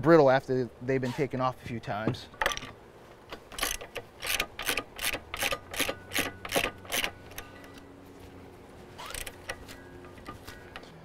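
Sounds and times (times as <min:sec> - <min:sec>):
ratchet wrench clicking: 0:03.5 - 0:07.5, 0:09.0 - 0:10.8.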